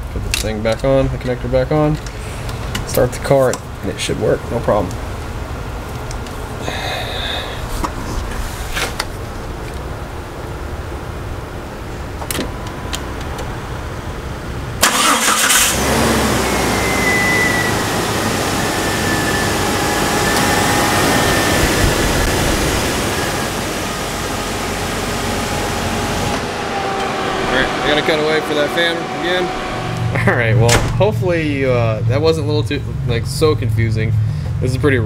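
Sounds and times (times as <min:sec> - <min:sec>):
cooling fan running: 0:02.1 - 0:34.6
car engine starting and running: 0:09.0 - 0:34.6
faint whine: 0:16.2 - 0:33.2.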